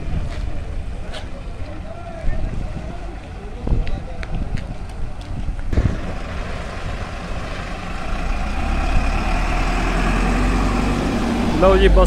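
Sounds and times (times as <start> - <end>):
diesel bus engine driving past: 5.7 - 12.0.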